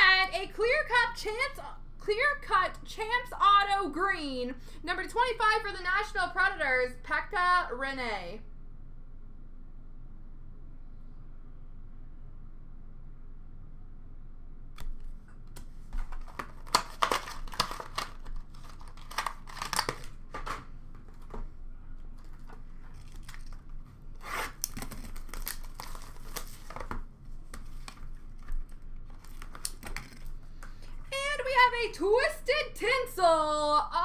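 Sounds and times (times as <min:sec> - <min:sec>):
trading card packaging crinkling: 0:14.8 - 0:31.1.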